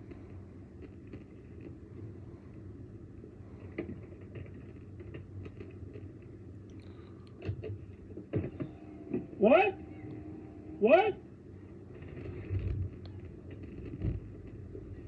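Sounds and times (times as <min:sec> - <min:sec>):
car cabin rumble: 0:07.4 - 0:15.0.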